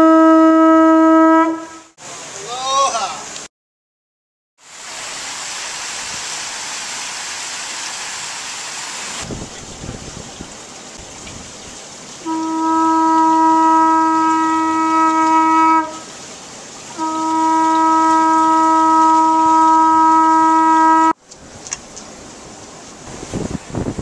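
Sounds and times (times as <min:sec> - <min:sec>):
conch shell horn blasts: 0:00.0 - 0:02.0, 0:12.2 - 0:16.1, 0:17.0 - 0:21.2.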